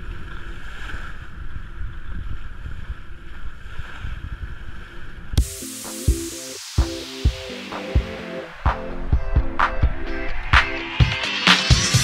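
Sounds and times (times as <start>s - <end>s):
water rushing along a hull: 0.0s - 8.6s.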